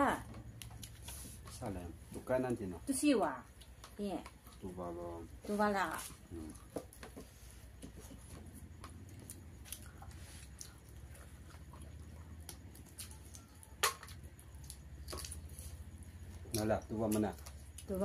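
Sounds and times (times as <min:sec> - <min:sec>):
steady low hum: 0:00.0 - 0:18.0
people chewing: 0:00.5 - 0:02.5, 0:05.9 - 0:18.0.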